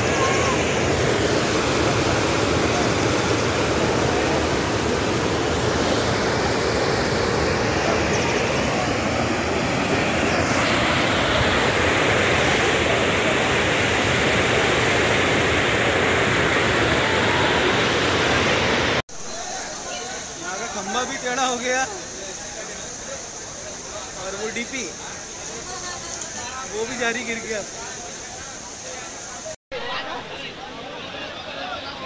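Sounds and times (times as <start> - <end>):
floodwater rushing: 0.0 - 19.0.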